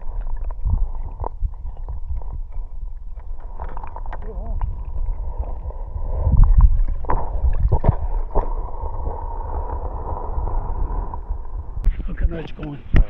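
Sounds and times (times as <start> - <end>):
knocks underwater: 0.0 - 9.2
underwater river gurgling: 0.0 - 11.9
low rumble: 0.0 - 12.4.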